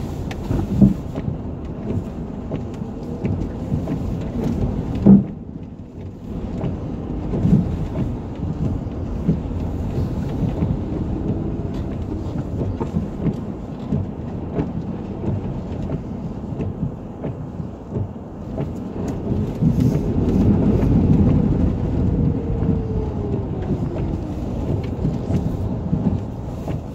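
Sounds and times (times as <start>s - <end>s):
car engine and tyres droning: 0.0s - 26.9s.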